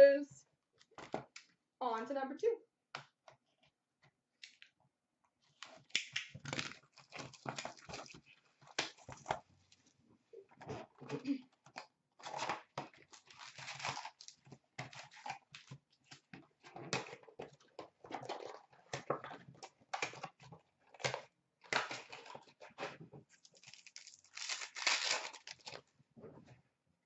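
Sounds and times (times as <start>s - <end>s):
plastic wrapping crinkling: 12.2s - 15.3s, 23.4s - 25.8s
cardboard box tearing open: 13.2s - 14.4s, 23.6s - 25.8s.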